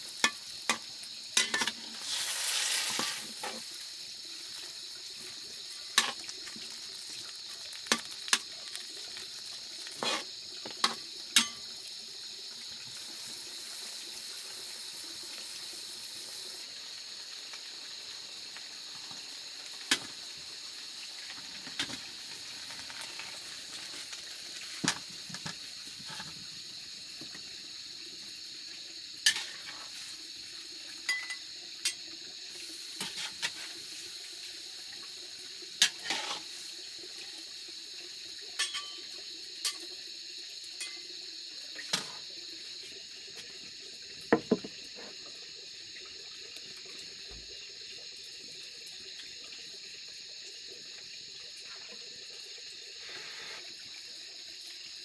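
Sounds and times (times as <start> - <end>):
greens sizzling in a wok: 0.0 - 55.0
utensil clinking against wok: 11.4 - 11.6, 38.6 - 39.0.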